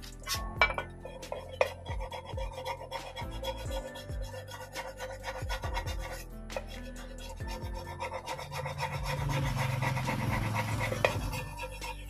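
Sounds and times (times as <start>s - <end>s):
hand file rasping on metal: 0.0s - 12.0s.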